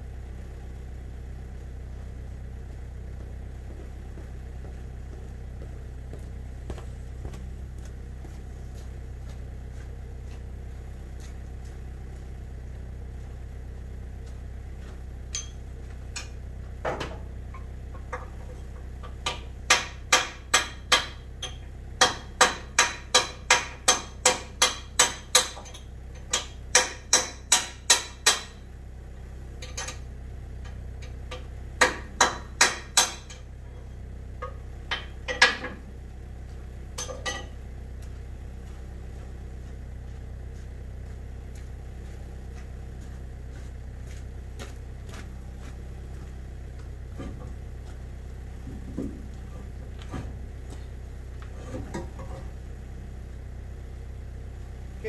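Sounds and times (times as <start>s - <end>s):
low engine hum: 0.0s - 55.0s
hammer striking metal: 15.3s - 15.6s, 19.2s - 28.6s, 31.8s - 33.4s.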